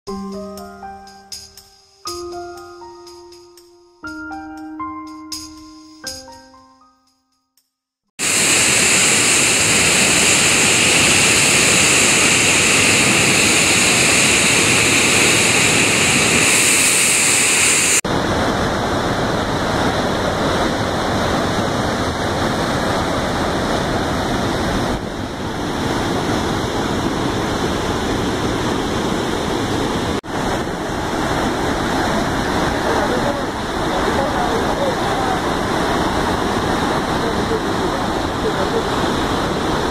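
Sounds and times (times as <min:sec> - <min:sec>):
floodwater rushing from spillway: 0:08.2 - 0:39.9.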